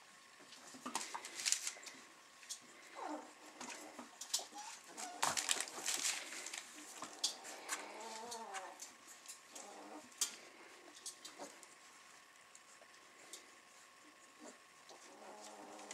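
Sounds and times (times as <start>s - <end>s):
puppies squeaking and crying: 4.3s - 5.9s.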